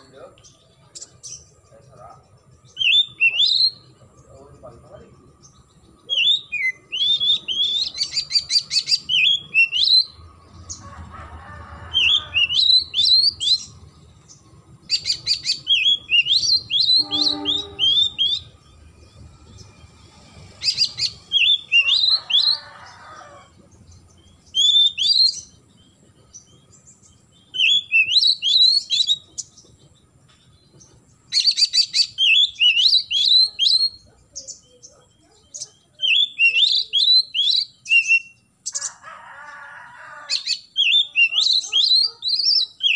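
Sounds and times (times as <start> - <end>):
bird singing rising notes: 0.0 - 11.1, 11.9 - 29.6.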